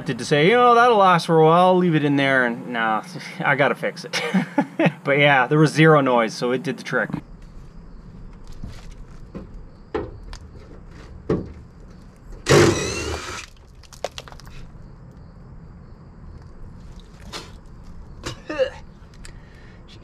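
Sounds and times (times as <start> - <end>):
cordless power tool whirring: 12.5 - 13.5.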